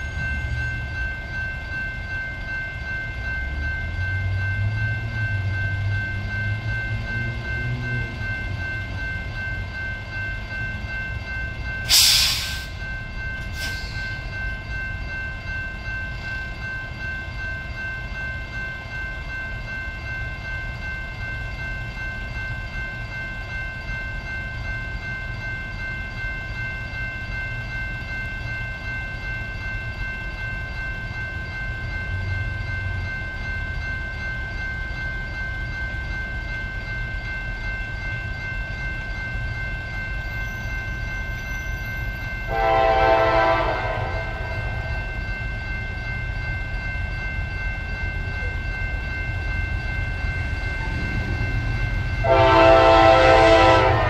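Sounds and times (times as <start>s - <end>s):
level crossing bells ringing: 0.0s - 54.0s.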